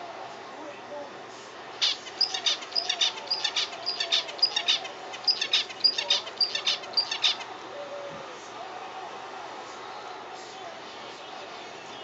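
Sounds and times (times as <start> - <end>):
finch chirping: 1.8 - 7.4.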